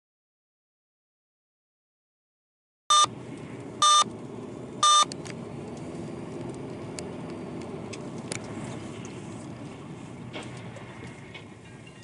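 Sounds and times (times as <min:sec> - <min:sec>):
loud electronic beep: 0:02.9 - 0:03.1, 0:03.8 - 0:04.1, 0:04.8 - 0:05.1
car driving rumble inside cabin: 0:02.9 - 0:12.0.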